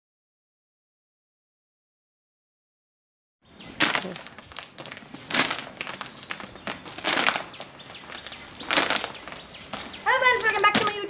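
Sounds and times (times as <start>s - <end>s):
plastic bottle crackling: 3.8s - 11.0s.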